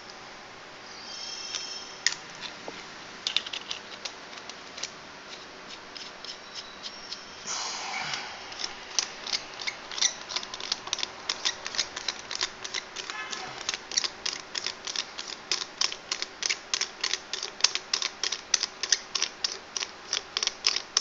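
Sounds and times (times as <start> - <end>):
metal parts clinking: 3.2 - 4.9.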